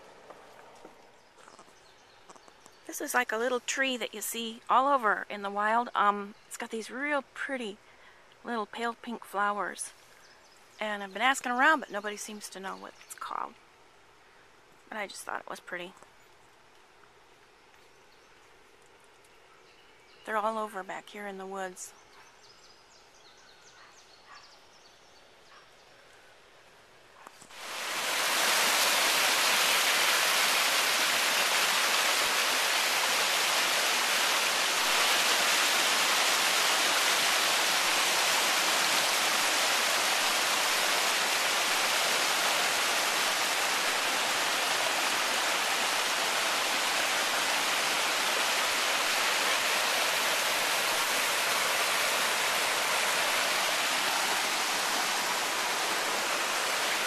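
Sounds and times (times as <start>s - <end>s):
creek water rushing over rocks: 27.4s - 57.0s.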